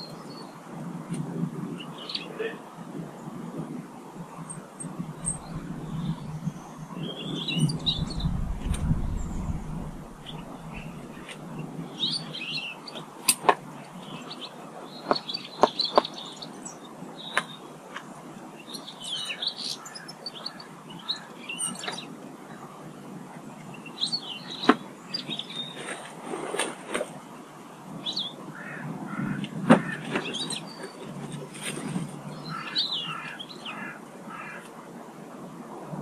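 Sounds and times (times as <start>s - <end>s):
steady low background noise: 0.0s - 15.5s
small birds chirping: 4.4s - 13.1s.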